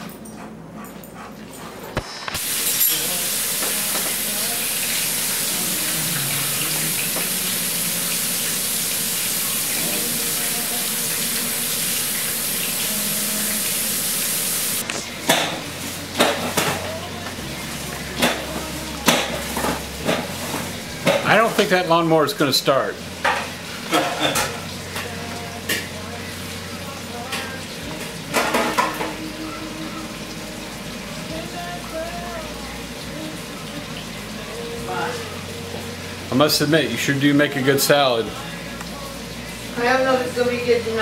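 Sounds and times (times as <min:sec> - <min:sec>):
tap running into sink: 0:02.0 - 0:13.7, 0:16.2 - 0:21.7
bowl and dishes clattering: 0:23.2 - 0:25.1, 0:28.3 - 0:29.2.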